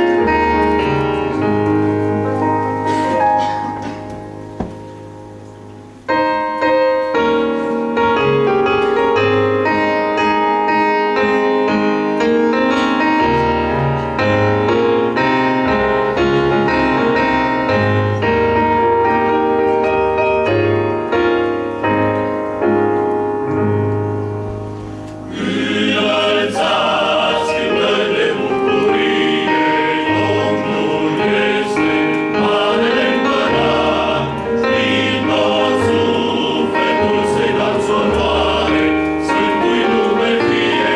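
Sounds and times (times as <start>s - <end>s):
piano playing hymn: 0.0s - 40.9s
men's choir singing: 25.2s - 40.9s.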